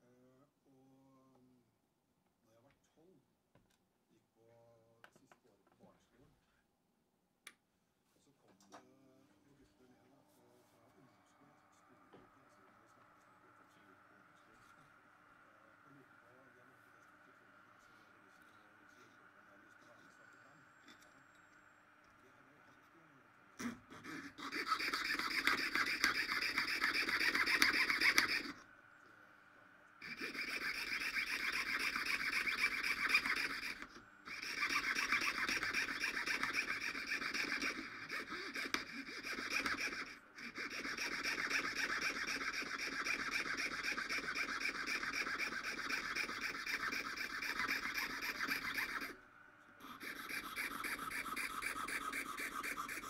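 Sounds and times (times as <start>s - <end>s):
piercing saw rasping through shell: 23.6s - 28.6s, 30.0s - 49.2s, 49.8s - 53.0s.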